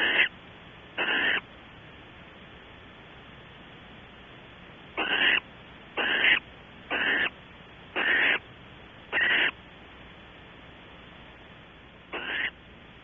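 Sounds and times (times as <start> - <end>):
owl rasping hiss-like calls: 0.0 - 0.3, 1.0 - 1.5, 5.0 - 8.5, 9.1 - 9.6, 12.1 - 12.6.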